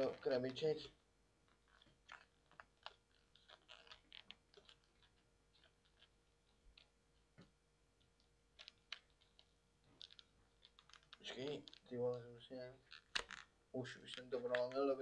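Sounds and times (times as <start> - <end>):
packaging clicks and crinkles: 1.5 - 6.9, 8.2 - 12.2, 12.8 - 15.0.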